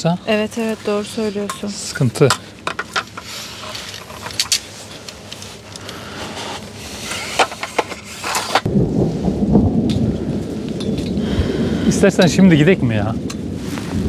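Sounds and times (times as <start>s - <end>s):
thunder rumbling: 8.6s - 14.0s.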